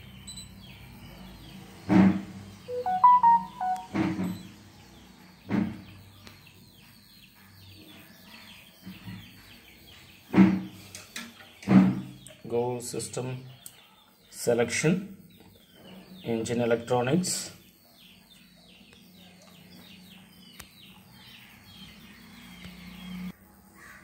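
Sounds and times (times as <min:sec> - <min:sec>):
birds chirping: 0:00.0 - 0:23.4
electronic beep jingle: 0:02.7 - 0:04.4.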